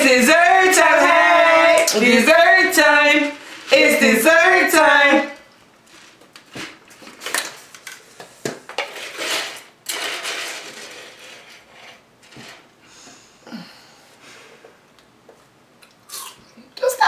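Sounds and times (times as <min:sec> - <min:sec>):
scraping and rustling: 0:05.8 - 0:12.7.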